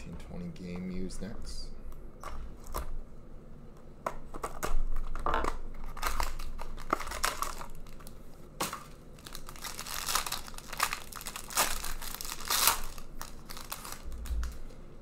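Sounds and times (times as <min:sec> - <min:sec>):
foil wrapper crinkling and tearing: 0:04.5 - 0:14.6.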